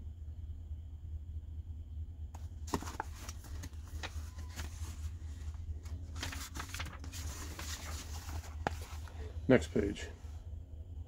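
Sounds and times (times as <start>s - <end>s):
steady low hum: 0.0s - 11.0s
book pages rustling: 2.4s - 9.4s.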